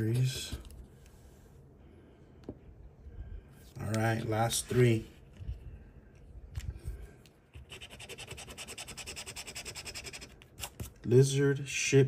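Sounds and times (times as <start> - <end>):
coin scratching lottery ticket: 7.7 - 10.8.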